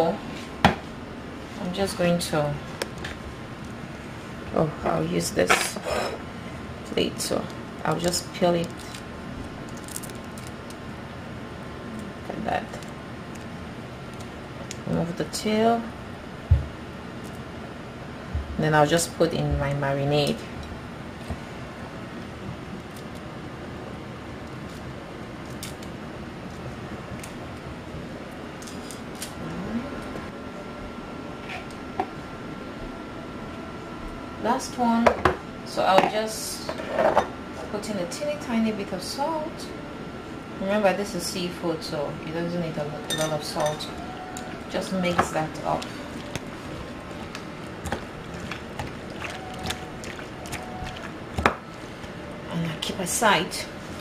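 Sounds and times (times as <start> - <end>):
steady room hum: 0.0 - 54.0
shrimp being peeled by hand: 7.9 - 10.8, 24.5 - 26.0
wet hand mixing shrimp: 44.4 - 52.9.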